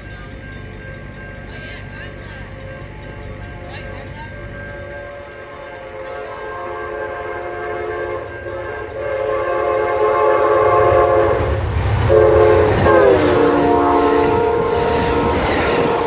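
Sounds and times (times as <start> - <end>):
diesel locomotive engine rumble: 0.0 - 16.0
locomotive air horn blasts: 4.8 - 16.0.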